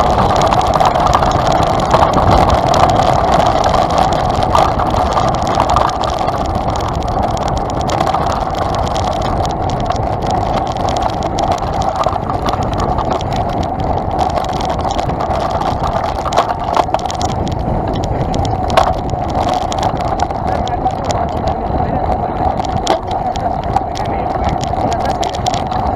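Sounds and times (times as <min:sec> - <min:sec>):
bike knocks and rattles: 0:00.0 - 0:25.9
tyres and wind rumble: 0:00.0 - 0:25.9.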